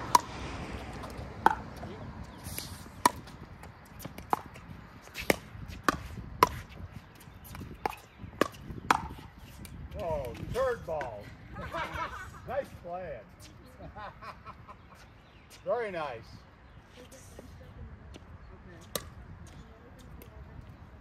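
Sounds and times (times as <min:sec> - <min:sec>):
ball bouncing on hard court: 0:00.0 - 0:02.0, 0:03.0 - 0:10.4.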